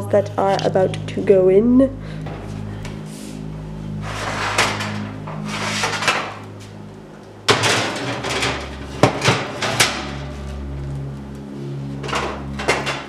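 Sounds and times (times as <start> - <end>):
steady low hum: 0.0 - 13.0
baking sheet scraping: 4.0 - 6.4
metal tray clank: 7.5 - 10.2
tray clicks and rattles: 7.5 - 10.3, 12.0 - 13.0.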